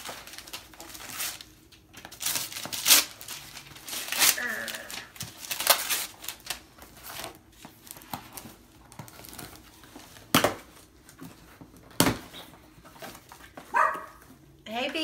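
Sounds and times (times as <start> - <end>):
cardboard ripping: 0.0 - 8.1
cardboard crinkling and rustling: 0.0 - 14.4.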